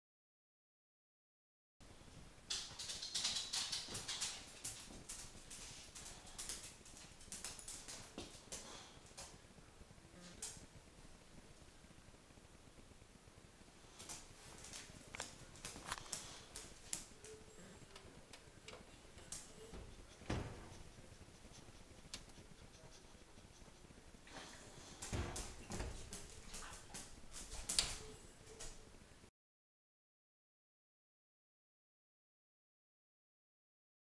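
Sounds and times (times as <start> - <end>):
electric range clicks and knocks: 18.3 - 21.0.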